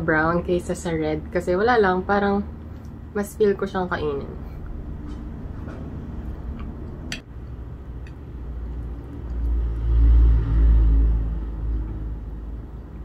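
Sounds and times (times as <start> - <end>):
vehicle engine rumble driving past: 4.2 - 13.0.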